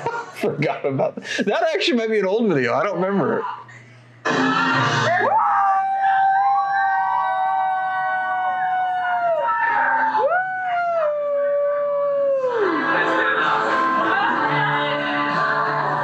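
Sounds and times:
voices holding long high notes: 4.2s - 6.6s.

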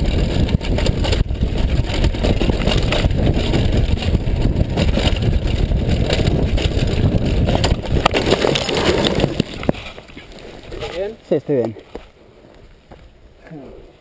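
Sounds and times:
bike crashing into dirt: 0.0s - 10.0s
wind on microphone: 0.0s - 11.1s
bike tyres rattling over stones: 0.0s - 13.2s.

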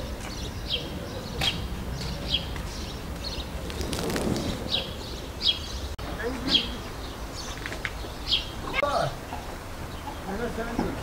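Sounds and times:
small bird chirping: 0.2s - 9.0s.

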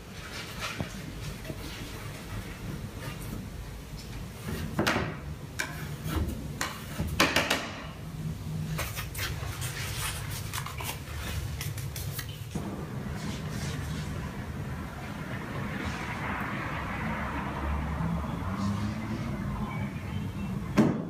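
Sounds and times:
steady low hum: 11.1s - 20.7s.

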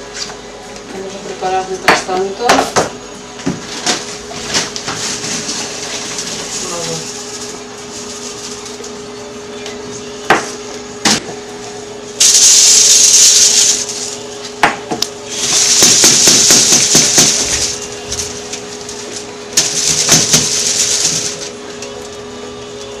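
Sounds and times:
homogenizer humming: 5.4s - 23.0s
capsules rattling in a tray: 12.2s - 14.2s, 15.3s - 18.4s, 19.6s - 21.5s.

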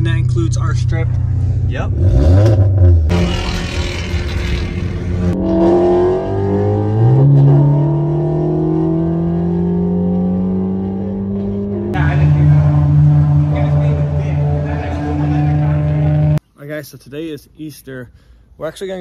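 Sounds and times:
car engine accelerating hard: 1.9s - 16.4s.

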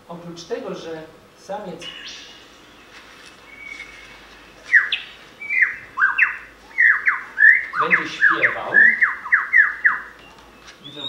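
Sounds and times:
bird song over speakers: 1.6s - 11.0s.

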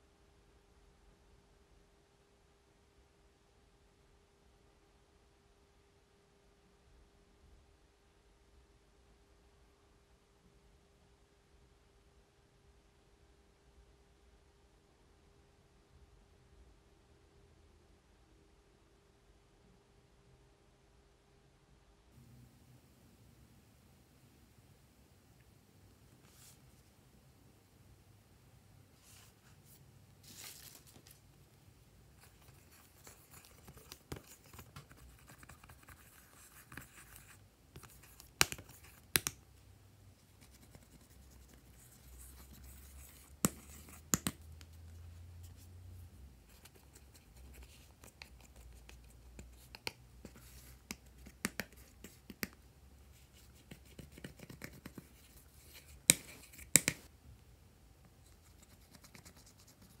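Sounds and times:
spatula scratching eyeshadow: 32.1s - 39.3s.

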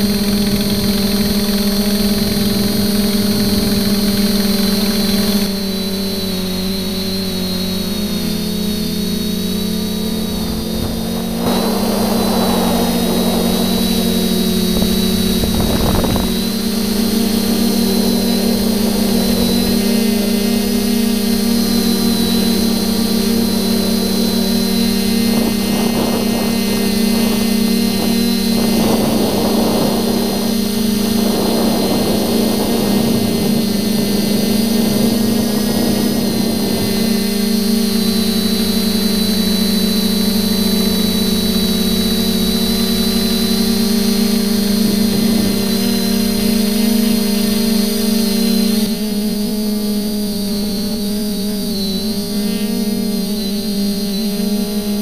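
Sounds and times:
quadcopter motors humming: 0.0s - 55.0s
rushes of noise: 7.0s - 38.8s.

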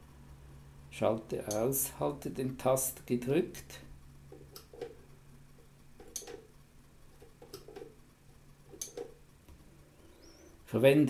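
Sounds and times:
faint switch clicks: 1.5s - 1.7s.

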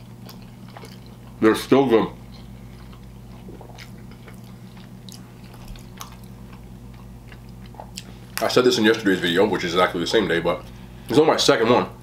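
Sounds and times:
steady low hum: 0.0s - 12.0s
wet mouth clicks chewing: 2.3s - 8.4s.

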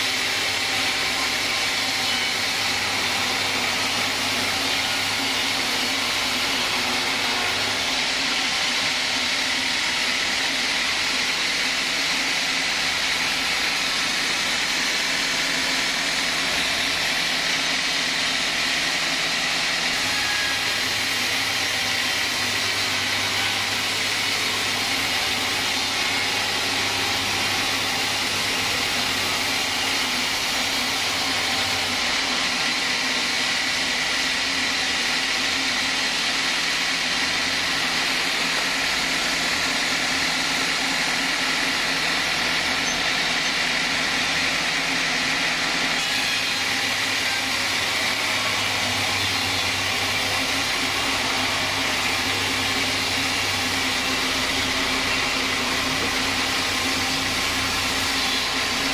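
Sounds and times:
band saw cutting log: 0.0s - 58.9s.

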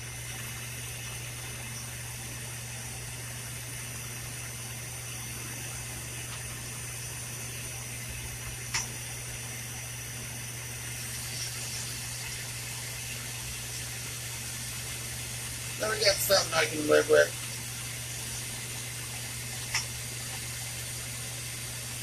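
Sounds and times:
low steady hum: 0.0s - 22.0s
torch flame hissing: 3.0s - 22.0s.

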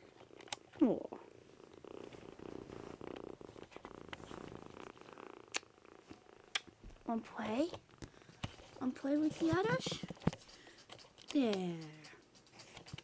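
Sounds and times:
kitten purring: 0.0s - 13.0s
sharp clicks: 10.0s - 13.0s.

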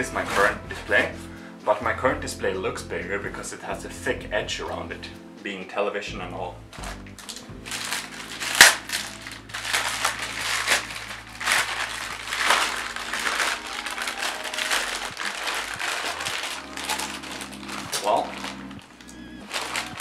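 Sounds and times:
plastic bags crinkling: 6.8s - 20.0s.

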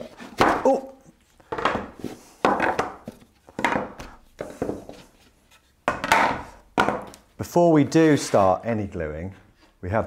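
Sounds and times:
wooden panels knocking and clattering: 1.5s - 5.0s, 5.8s - 7.3s.

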